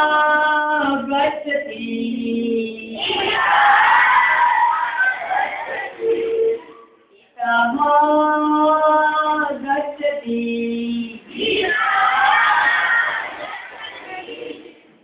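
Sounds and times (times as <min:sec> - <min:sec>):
children singing together: 0:02.8 - 0:06.9, 0:10.9 - 0:14.9.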